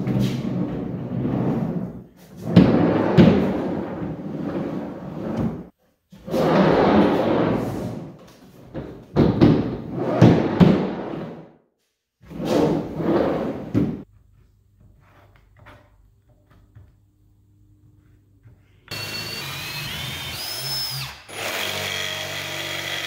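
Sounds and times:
drawer rolling on bearing tracks: 0.0 - 5.7.

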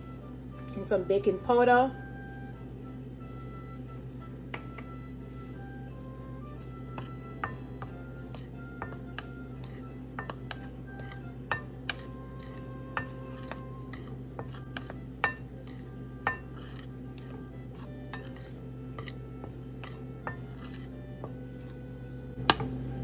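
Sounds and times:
steady low hum: 0.0 - 23.0
metal spoon clinking glass bowl: 7.0 - 19.2.

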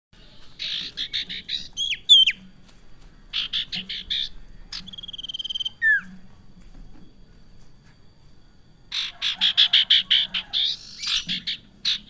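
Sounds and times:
bird whistles: 3.4 - 6.1.

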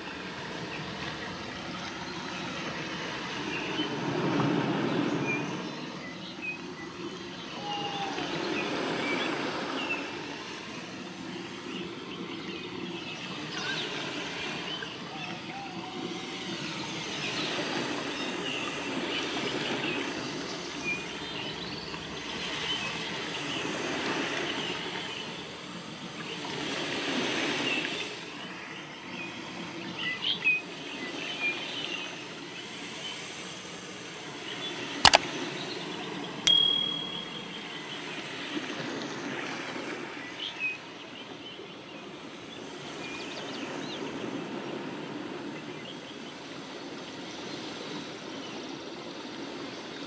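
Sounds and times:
sharp click: 35.1 - 35.3
bell-like ding: 36.5 - 37.7
short high chirps: 36.5 - 37.7.

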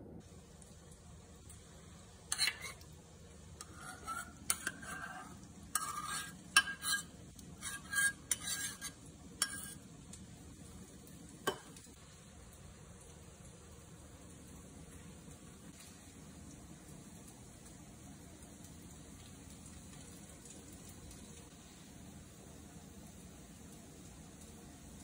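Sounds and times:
spoon scraping metal cup: 2.3 - 2.9, 3.6 - 9.8.

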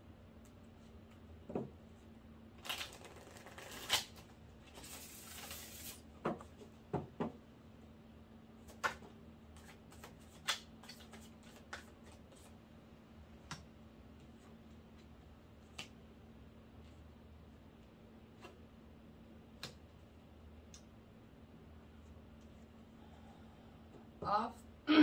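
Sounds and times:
cards being shuffled: 2.6 - 6.0, 8.6 - 12.6
cards tapping and knocking: 8.7 - 12.5.

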